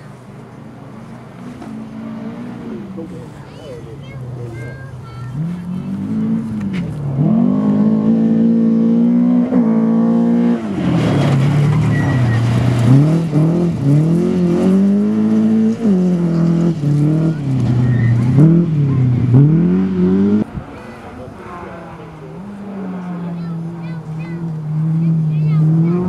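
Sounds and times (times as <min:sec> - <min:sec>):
gravel and tyre noise: 0:00.0 - 0:26.0
rally car engine revving: 0:00.0 - 0:26.0.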